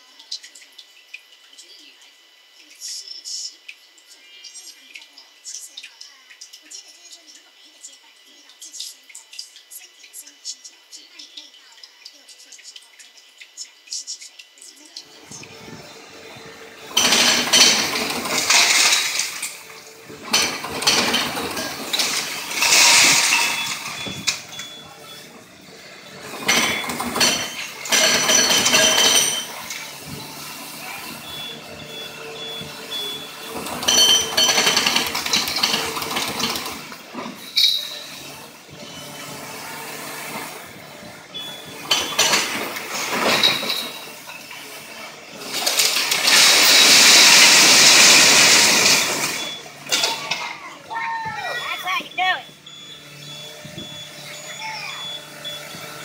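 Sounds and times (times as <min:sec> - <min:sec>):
excavator engine running: 0:15.0 - 0:56.0
masonry and debris crashing down: 0:16.9 - 0:19.6, 0:20.2 - 0:24.6, 0:45.4 - 0:50.6.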